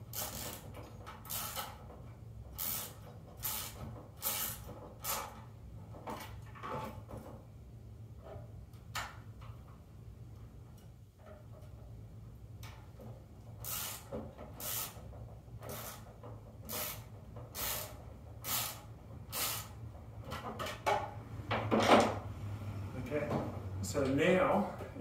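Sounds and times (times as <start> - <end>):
wrench tightening nuts: 0.0 - 1.8, 2.6 - 5.4, 13.6 - 15.0, 15.6 - 20.4.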